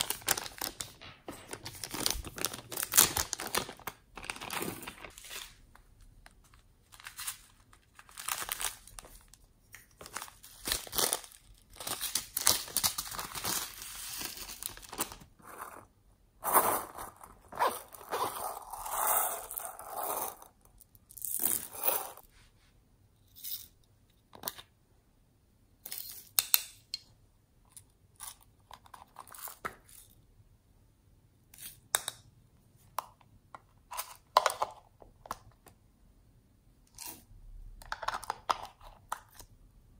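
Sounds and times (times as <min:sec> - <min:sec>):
plastic packaging crinkling: 0:00.0 - 0:05.8, 0:06.8 - 0:15.5.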